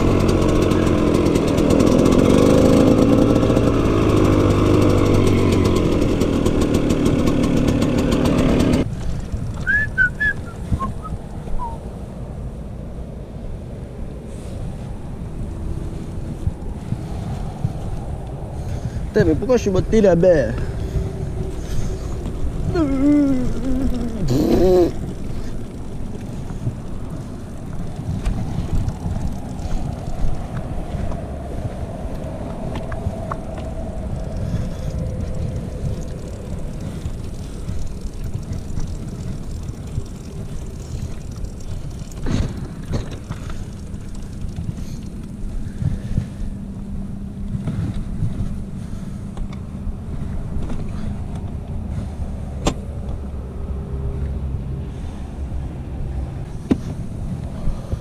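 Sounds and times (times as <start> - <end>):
dirt bike engine running: 0.0 - 11.8, 18.6 - 51.2
wind buffeting microphone: 8.8 - 12.0, 13.5 - 52.6.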